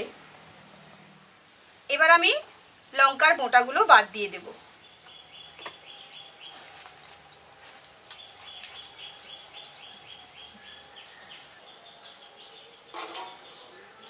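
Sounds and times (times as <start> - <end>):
rustle: 0.0 - 14.0
nightingale song: 3.0 - 14.0.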